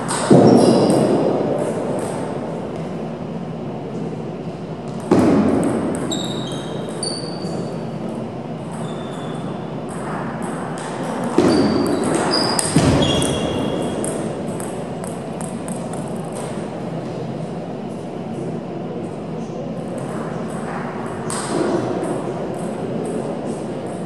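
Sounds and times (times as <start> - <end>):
table tennis ball pinging: 8.6 - 16.6.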